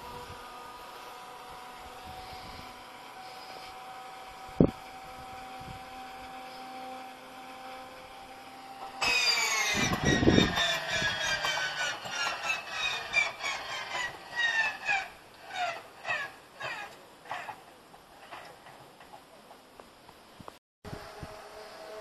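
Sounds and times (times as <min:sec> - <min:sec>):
engine thuds and uneven pulses: 0:00.0 - 0:14.7
engine starter whine: 0:00.0 - 0:16.9
starter grinding: 0:00.0 - 0:19.2.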